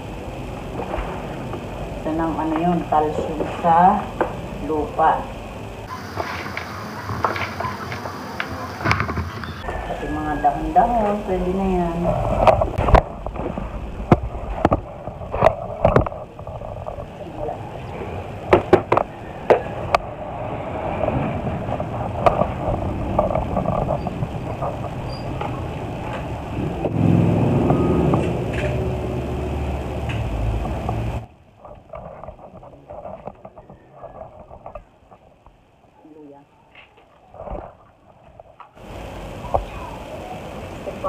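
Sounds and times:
low rumble: 0:09.5 - 0:33.3.

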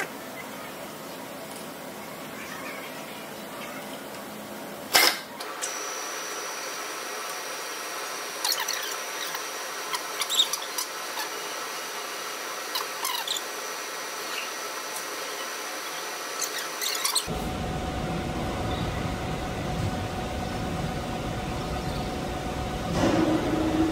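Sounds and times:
milling machine spindle whine: 0:05.4 - 0:23.9.

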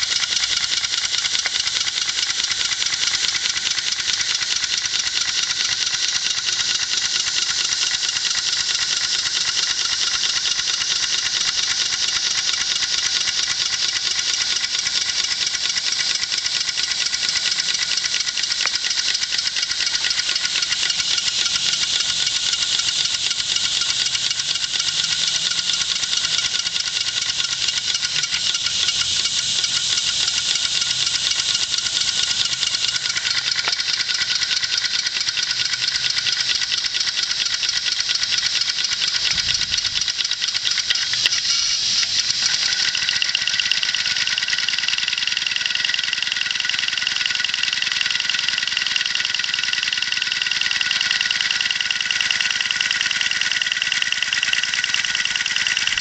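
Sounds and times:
mechanical clatter: 0:00.0 - 0:56.0
rapid steam engine exhaust beat: 0:00.0 - 0:56.0
air hissing: 0:17.0 - 0:33.9, 0:39.0 - 0:44.5.

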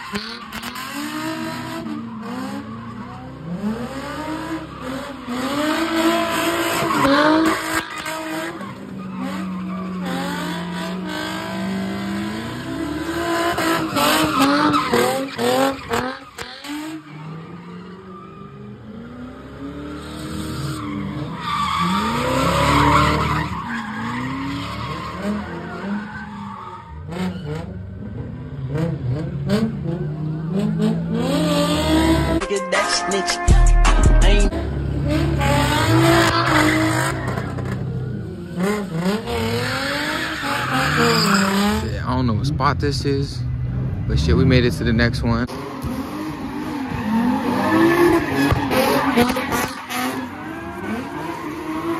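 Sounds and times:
car engines revving: 0:00.0 - 0:32.4, 0:33.6 - 0:51.9
tyres squealing: 0:39.4 - 0:42.2.

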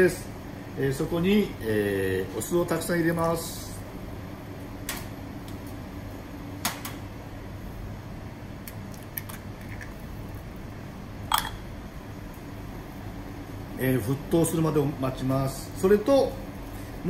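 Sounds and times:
eggshell tapping on glass bowl: 0:11.3 - 0:11.6.

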